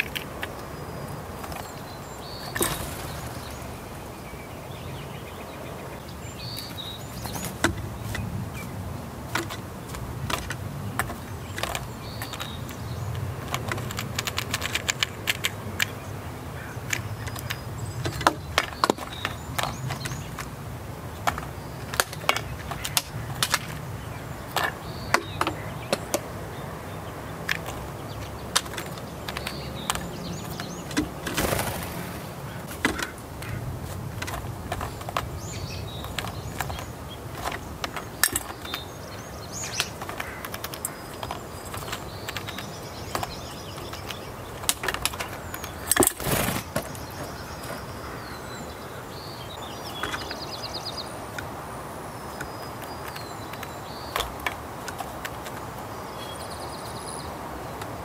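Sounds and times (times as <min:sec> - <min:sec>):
bird wings flapping: 0:02.4 - 0:04.0, 0:30.9 - 0:35.2, 0:44.8 - 0:47.3.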